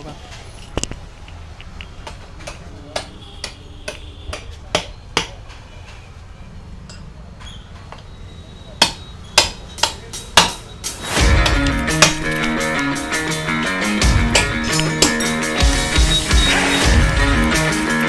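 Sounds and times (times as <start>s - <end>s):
metal tyre tools knocking: 1.6s - 6.1s, 6.8s - 8.1s, 8.8s - 12.6s, 14.0s - 16.5s
music: 9.8s - 18.0s.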